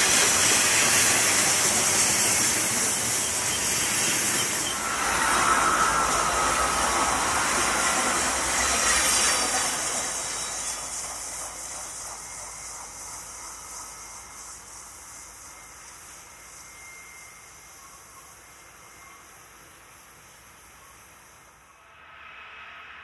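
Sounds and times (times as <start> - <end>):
freight train wheels on rail: 0.0 - 22.9.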